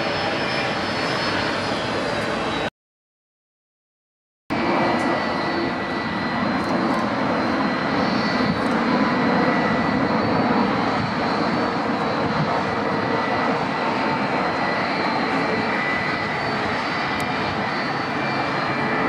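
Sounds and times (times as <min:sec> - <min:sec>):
jet engines with high whine: 0:00.0 - 0:02.7, 0:04.5 - 0:19.0.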